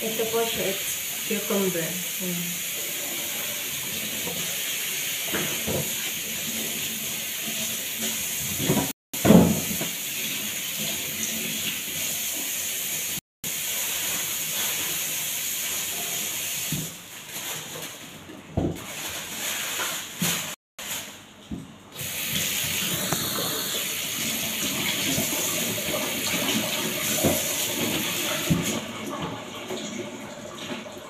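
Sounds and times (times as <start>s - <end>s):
tap running into sink: 5.2s - 6.1s, 24.6s - 29.9s.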